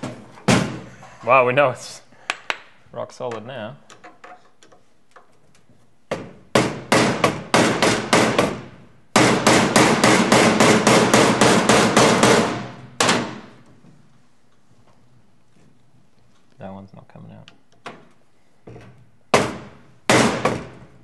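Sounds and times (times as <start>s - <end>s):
hammer striking a screwdriver: 9.2s - 13.2s.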